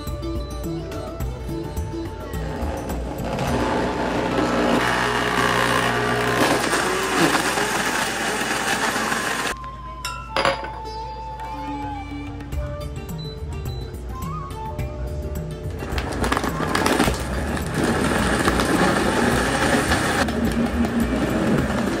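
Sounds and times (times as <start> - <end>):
background music: 0.0 - 22.0
blender whirring: 2.2 - 9.6, 16.0 - 22.0.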